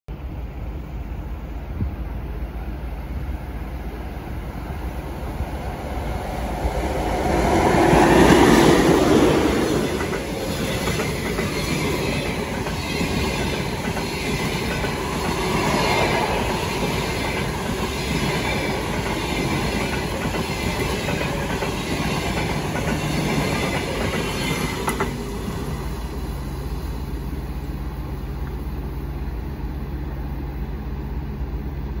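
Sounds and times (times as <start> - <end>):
electric locomotive passing: 0.2 - 32.0
train wheel clatter: 6.2 - 26.6.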